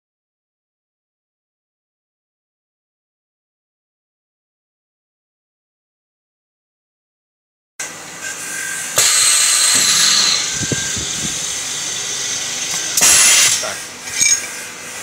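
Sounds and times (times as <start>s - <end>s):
spin riveting machine hissing: 8.2s - 15.0s.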